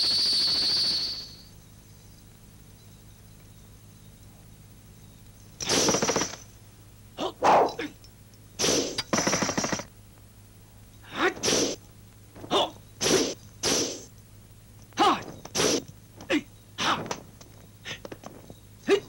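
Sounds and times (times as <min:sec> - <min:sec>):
person shouting and grunting: 0:07.2 - 0:07.9, 0:11.1 - 0:11.8, 0:12.4 - 0:13.3, 0:15.0 - 0:17.2.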